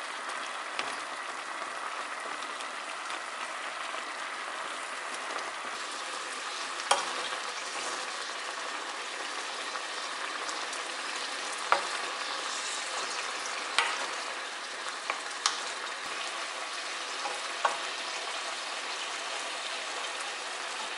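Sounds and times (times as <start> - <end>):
liquid bubbling and sizzling: 0.0 - 20.9
wooden spatula knocking pan: 13.7 - 14.2.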